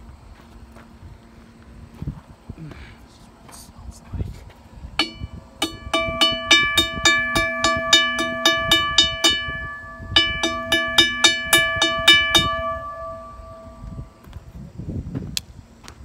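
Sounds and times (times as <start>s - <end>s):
crossing bell gong struck with rock: 5.0s - 14.2s.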